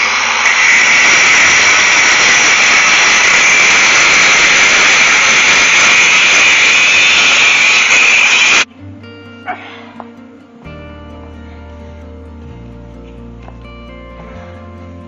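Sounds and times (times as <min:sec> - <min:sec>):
angle grinder cutting steel: 0:00.0 - 0:08.7.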